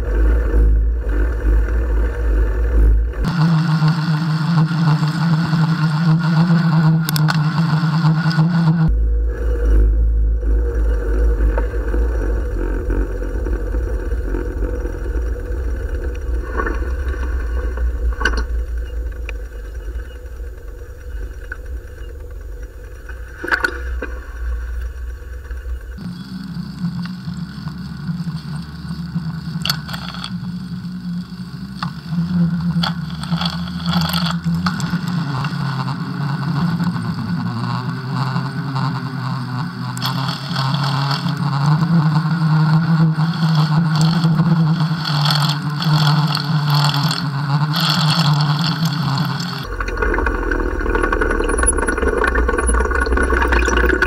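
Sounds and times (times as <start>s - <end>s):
steady engine hum: 0.0s - 54.0s
wind rumble on microphone: 0.0s - 54.0s
street traffic: 8.9s - 35.2s
clicks and rattles: 15.5s - 26.1s, 29.4s - 30.6s, 32.7s - 35.6s, 40.0s - 41.7s, 43.2s - 54.0s.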